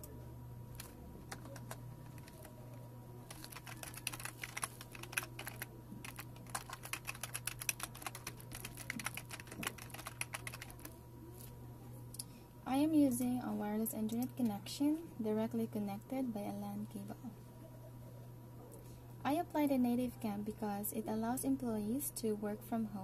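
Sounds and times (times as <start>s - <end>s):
steady low hum: 0.0s - 23.0s
typing on keyboard: 0.8s - 2.6s, 3.3s - 11.0s.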